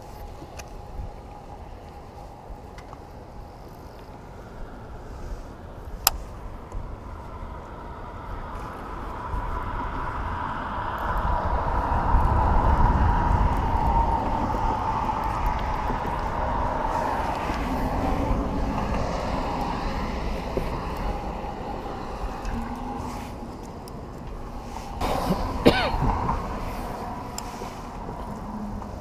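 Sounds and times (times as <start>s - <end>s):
passing vehicle engine rumble: 6.4s - 29.0s.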